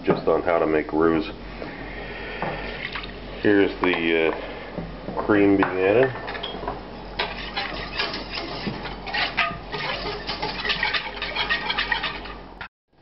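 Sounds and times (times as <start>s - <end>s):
wooden spoon scraping a saucepan: 7.2s - 12.6s.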